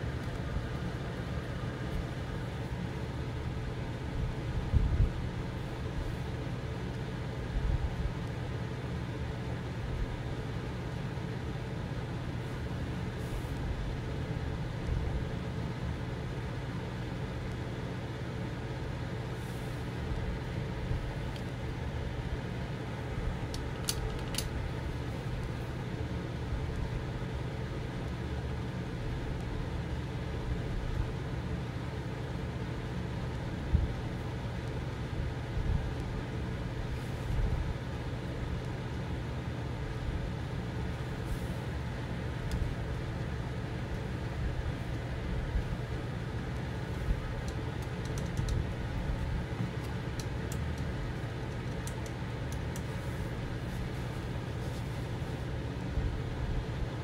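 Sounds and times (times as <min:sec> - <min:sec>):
low machine hum: 0:00.0 - 0:57.0
hiss: 0:13.1 - 0:13.7
faint clicks: 0:47.4 - 0:48.6, 0:49.8 - 0:52.9.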